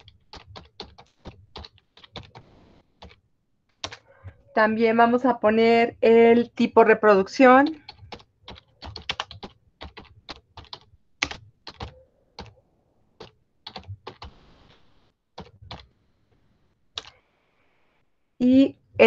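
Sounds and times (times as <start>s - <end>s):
typing on keyboard: 0.0s - 3.2s, 3.8s - 4.0s, 7.6s - 12.6s, 13.2s - 14.4s, 15.4s - 15.9s, 17.0s - 17.2s.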